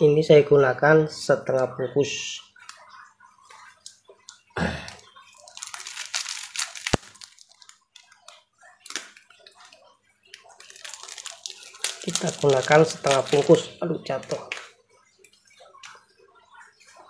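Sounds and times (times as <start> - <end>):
plastic wrapping crinkling: 2.6 - 14.8.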